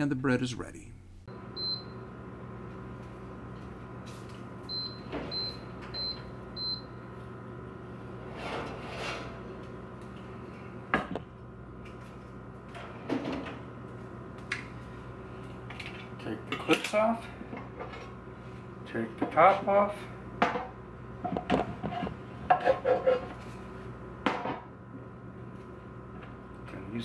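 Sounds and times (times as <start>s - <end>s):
toaster oven timer beeping: 1.5s - 2.1s, 4.6s - 7.0s.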